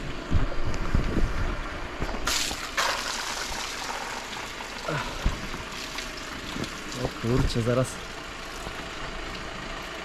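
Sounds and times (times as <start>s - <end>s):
water pouring onto ground: 2.2s - 9.5s.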